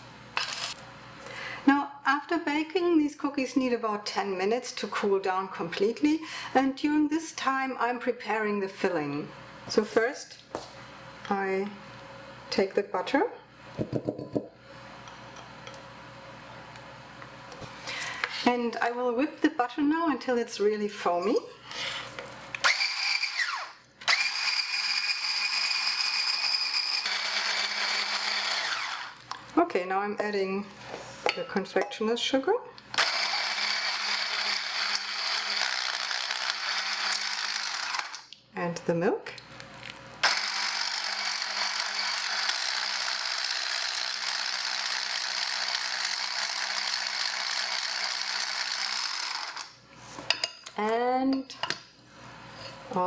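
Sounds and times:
immersion blender motor whine: 22.6 - 29.2, 33.0 - 38.2, 40.2 - 49.7.

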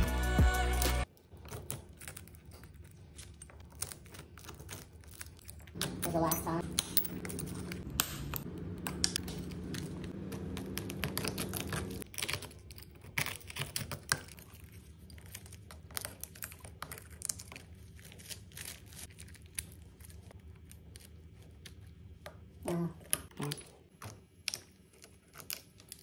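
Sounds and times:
glass chipping and crackling: 1.0 - 20.3
steady low hum: 5.7 - 12.1.

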